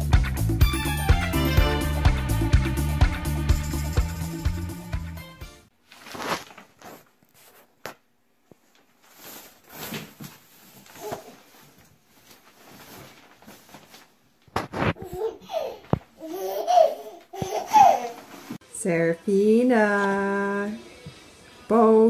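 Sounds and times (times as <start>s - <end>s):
soft rustling: 5.8s - 16.1s.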